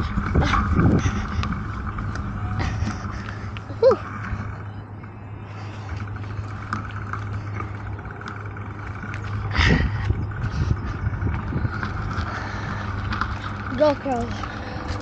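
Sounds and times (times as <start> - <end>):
bicycle rolling: 0.0 - 15.0
wind rumble: 0.0 - 15.0
bicycle bump: 5.8 - 15.0.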